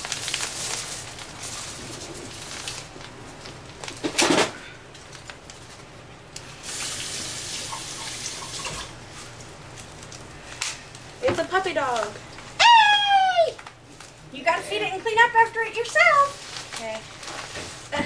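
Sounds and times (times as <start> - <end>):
envelope ripping open: 0.0 - 4.5, 16.3 - 17.6
packaging crinkling and rustling: 0.0 - 7.0, 8.9 - 17.9.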